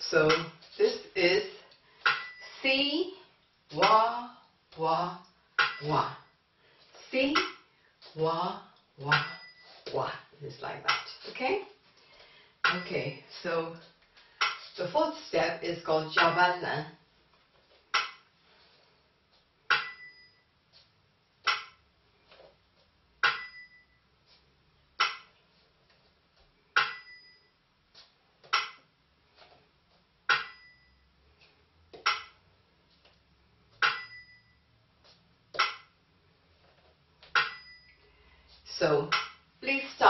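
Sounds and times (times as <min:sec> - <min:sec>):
small bell ringing: 0:19.8 - 0:20.5, 0:23.3 - 0:24.0, 0:26.8 - 0:27.6, 0:30.4 - 0:31.0, 0:33.9 - 0:34.8, 0:37.4 - 0:38.2.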